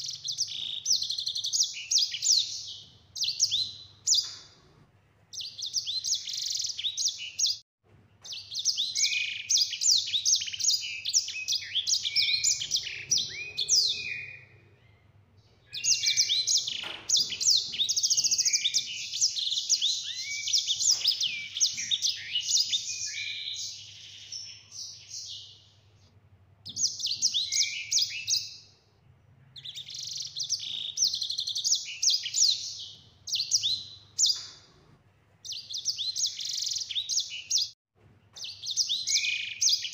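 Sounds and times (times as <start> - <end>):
canary singing rapid trills: 0.0 - 4.6, 8.3 - 14.6, 15.7 - 25.6, 29.5 - 34.6.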